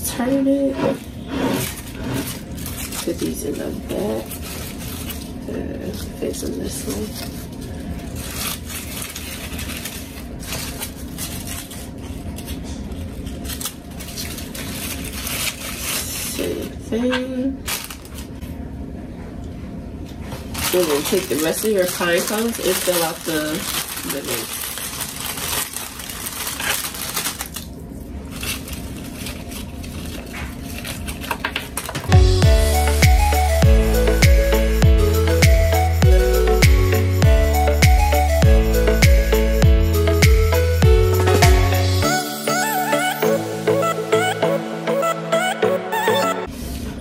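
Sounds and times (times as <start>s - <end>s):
artificial leaves rustling: 0.2s - 16.7s, 17.6s - 18.5s, 20.2s - 32.1s
plastic bag crinkling: 0.4s - 16.7s, 17.6s - 18.5s, 20.4s - 32.2s
pine cones rattling in glass vase: 20.6s - 27.6s
music: 32.1s - 46.5s.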